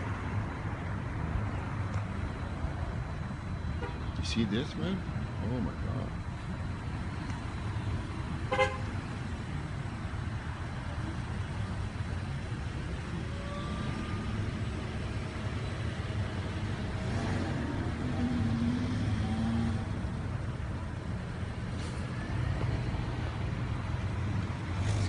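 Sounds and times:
road traffic rumble: 0:00.0 - 0:25.0
car horn toot: 0:03.8 - 0:04.1, 0:08.5 - 0:08.9.

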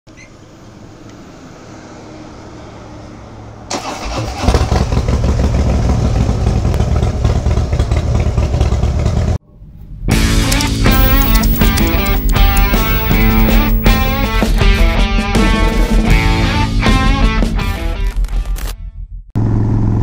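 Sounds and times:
low steady hum: 0:10.9 - 0:14.3.

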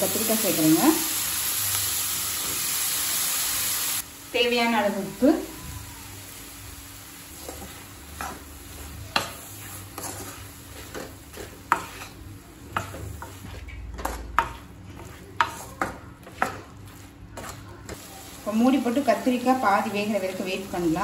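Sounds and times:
light frying sizzle: 0:00.0 - 0:21.0
spatula scraping metal pan: 0:09.2 - 0:12.2.

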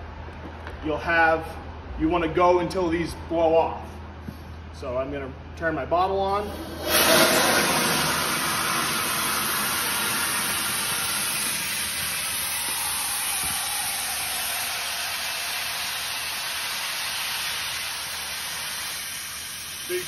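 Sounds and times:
compressed air hissing through hose: 0:06.4 - 0:20.0.

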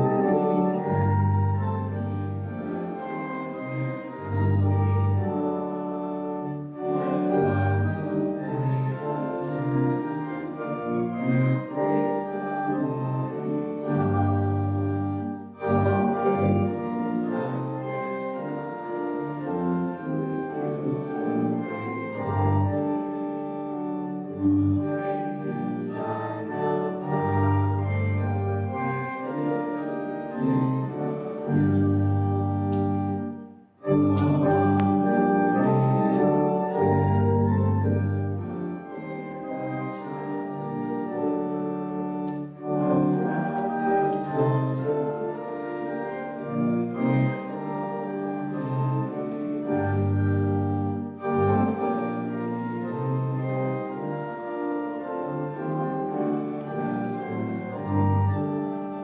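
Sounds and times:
pipe organ playing a hymn: 0:00.0 - 0:59.0.

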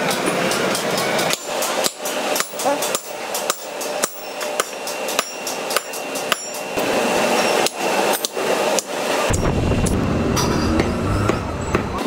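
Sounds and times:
hammer striking anvil: 0:00.1 - 0:06.7, 0:09.3 - 0:12.0.

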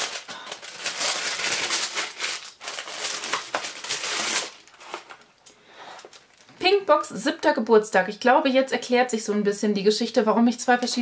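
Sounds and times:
tissue paper crinkling: 0:00.0 - 0:05.3.

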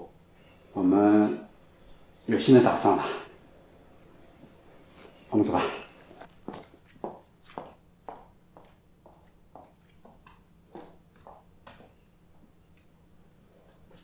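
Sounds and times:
steady low hum: 0:00.0 - 0:14.0
footsteps on tiled floor: 0:04.4 - 0:12.5.

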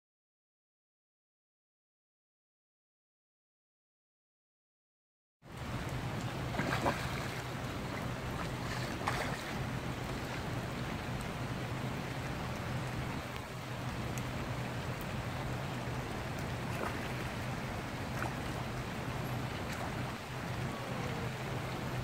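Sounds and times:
wind or water hiss: 0:05.4 - 0:22.0
low steady hum: 0:05.5 - 0:22.0.

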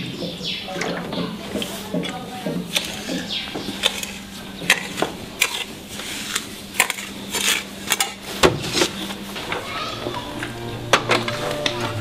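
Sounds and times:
low steady hum: 0:09.7 - 0:12.0.

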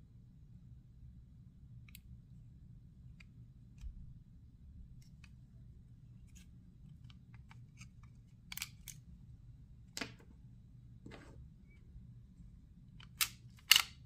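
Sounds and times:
pistol slide clicks: 0:13.1 - 0:14.0.

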